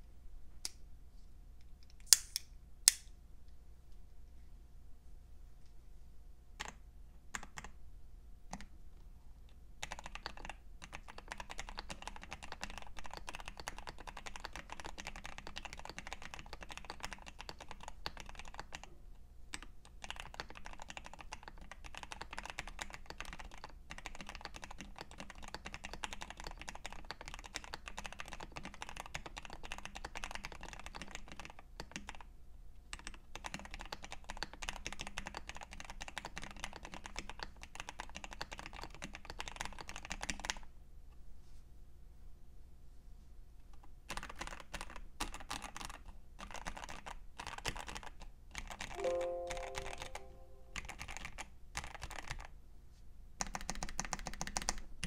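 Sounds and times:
mechanical keyboard typing: 0:06.6 - 0:07.7, 0:09.8 - 0:18.9, 0:19.5 - 0:32.3, 0:32.9 - 0:40.6, 0:44.1 - 0:52.5, 0:53.4 - 0:54.9.

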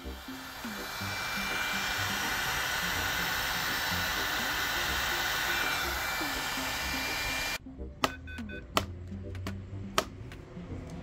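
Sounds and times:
heat gun blowing hot air: 0:00.0 - 0:07.6.

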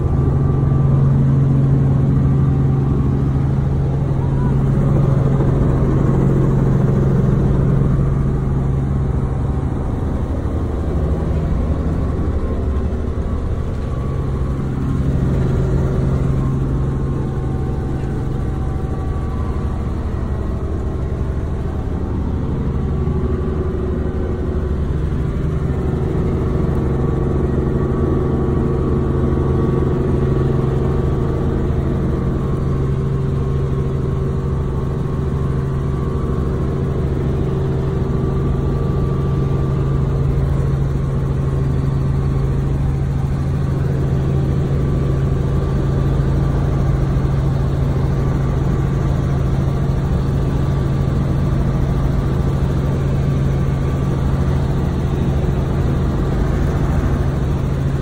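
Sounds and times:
helicopter engine and rotor noise: 0:00.0 - 0:58.0.

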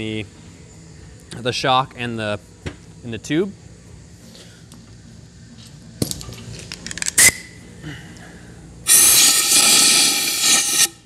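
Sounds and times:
compressed air hiss: 0:08.8 - 0:11.0.

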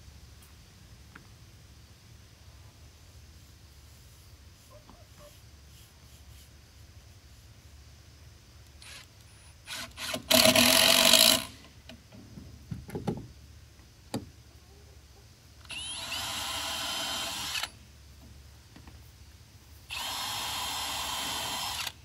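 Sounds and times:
cordless drill whirring: 0:09.7 - 0:11.6, 0:15.6 - 0:17.8, 0:19.9 - 0:22.0.

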